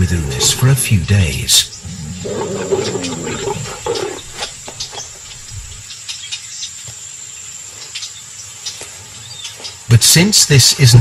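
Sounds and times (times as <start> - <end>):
tiger growling low: 0.0 - 5.8.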